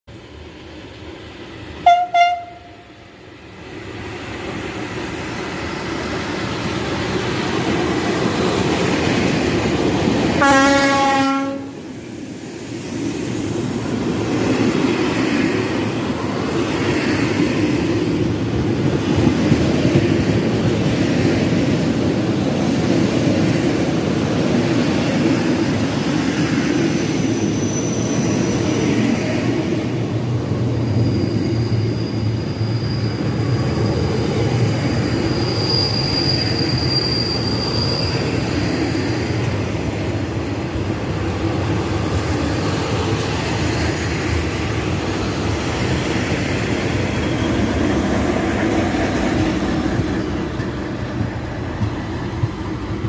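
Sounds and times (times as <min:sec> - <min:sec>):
train passing with rumble: 0:00.1 - 0:53.0
train horn: 0:01.8 - 0:02.9, 0:10.4 - 0:11.8.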